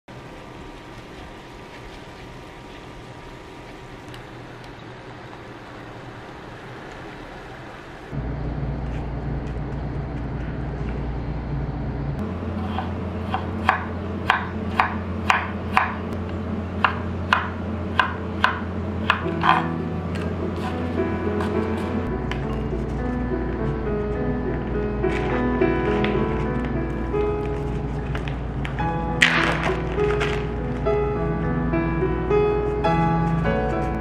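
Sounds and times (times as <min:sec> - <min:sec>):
background music: 0:18.0 - 0:34.0.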